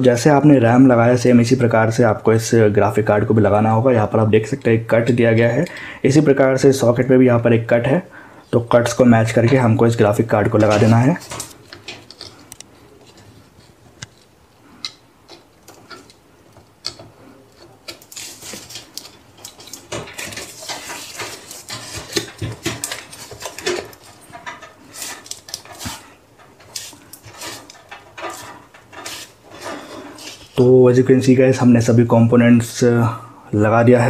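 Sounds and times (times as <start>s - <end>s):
rustling: 10.5s - 30.7s.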